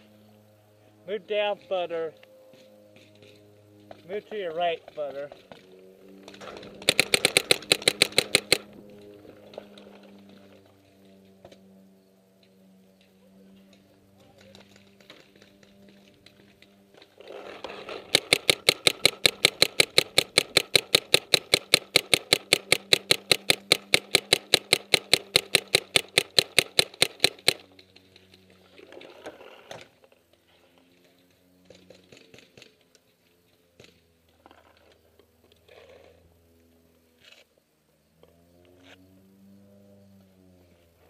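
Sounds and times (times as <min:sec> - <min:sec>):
paintball marker rapid firing: 0:06.2 - 0:08.9, 0:17.7 - 0:27.8.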